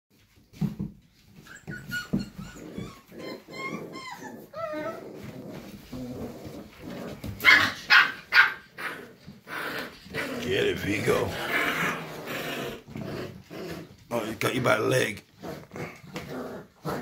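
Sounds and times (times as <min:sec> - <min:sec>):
puppies whimpering and yipping: 0:01.2 - 0:09.4.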